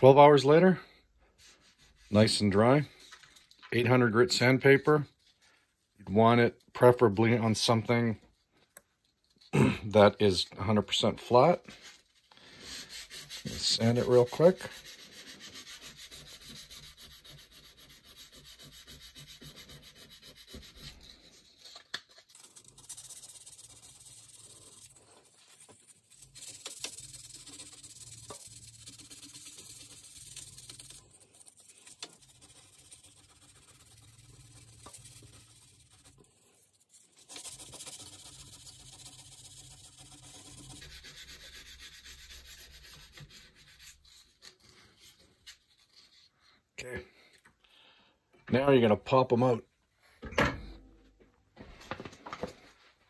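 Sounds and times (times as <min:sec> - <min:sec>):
sandpaper rubbing by hand: 0:01.4 - 0:03.1, 0:11.2 - 0:46.3.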